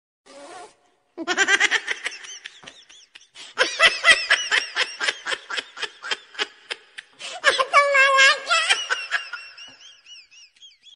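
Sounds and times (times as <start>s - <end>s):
person giggling: 1.2s - 7.8s.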